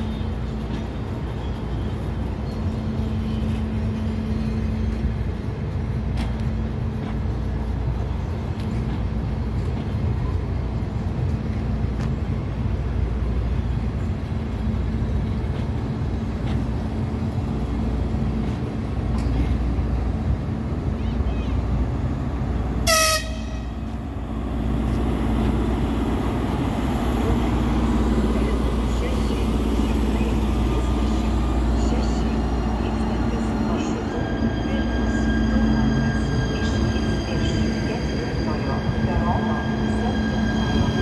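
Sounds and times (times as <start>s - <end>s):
diesel train rumbling past: 0.0s - 41.0s.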